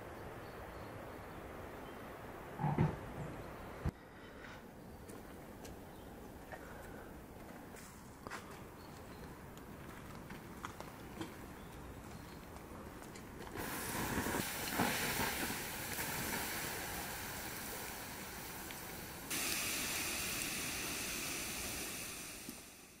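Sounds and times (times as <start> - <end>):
water hissing on hot embers: 13.5 - 23.0.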